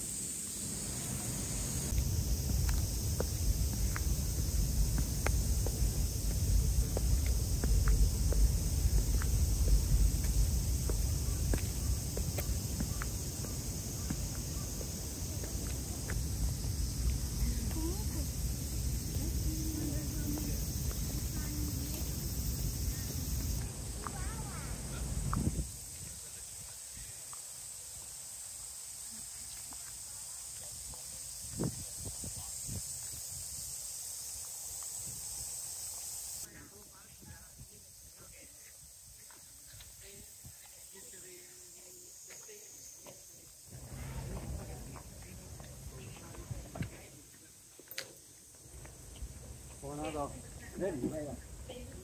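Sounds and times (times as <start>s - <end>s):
high-pitched outdoor hiss: 0.0s - 52.0s
insects chirring: 0.0s - 52.0s
low rumble: 1.9s - 12.8s
soft low thumps: 1.9s - 24.5s.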